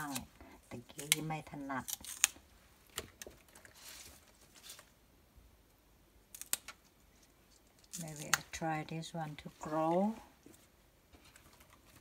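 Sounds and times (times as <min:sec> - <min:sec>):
stems snapping: 0:01.0 - 0:03.4, 0:06.3 - 0:06.9, 0:07.9 - 0:08.6.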